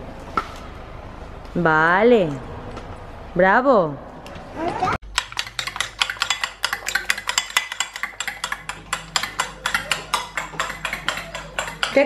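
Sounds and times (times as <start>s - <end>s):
fork whisking eggs in bowl: 5.1s - 12.0s.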